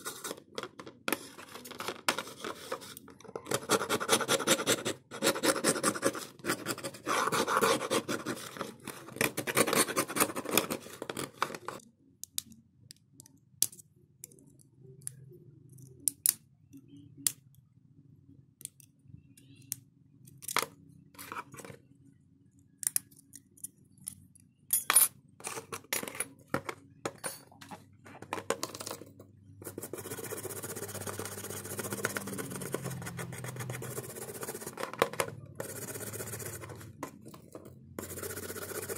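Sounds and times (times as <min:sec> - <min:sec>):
toothbrush scrubbing: 0:29.7 - 0:34.8.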